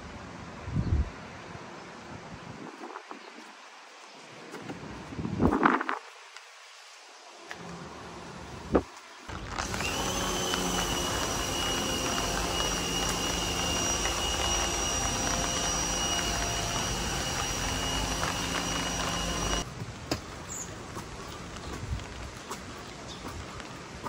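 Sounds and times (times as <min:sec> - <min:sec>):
machine humming with high whine: 0:09.3 - 0:19.6.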